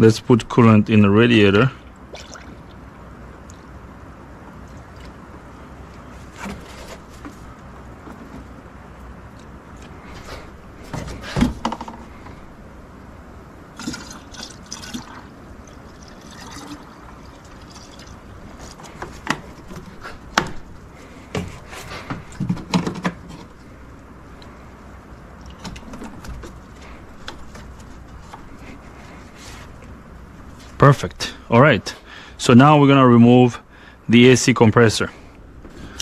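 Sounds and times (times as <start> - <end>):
liquid pouring and gurgling: 2.1 - 2.8, 13.8 - 18.3
sharp knocks and clicks: 10.9 - 12.1.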